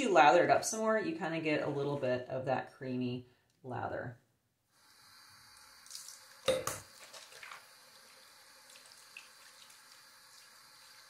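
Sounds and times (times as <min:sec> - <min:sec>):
faucet water running into sink: 0:04.9 - 0:11.0.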